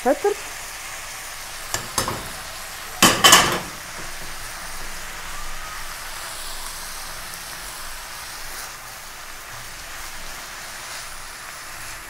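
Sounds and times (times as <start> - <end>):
vegetables sizzling in frying pan: 0.0 - 12.0
spatula stirring in pan: 1.5 - 4.6.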